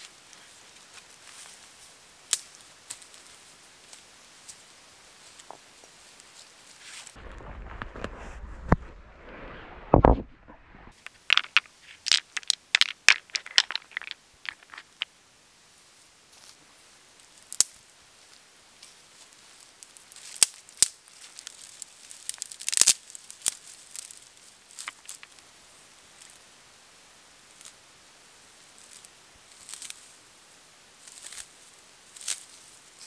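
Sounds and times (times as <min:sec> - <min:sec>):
dry grass rustling: 0:00.0 - 0:15.1, 0:16.3 - 0:26.5, 0:28.6 - 0:33.0
dry twigs snapping: 0:11.0 - 0:15.1, 0:20.1 - 0:25.4.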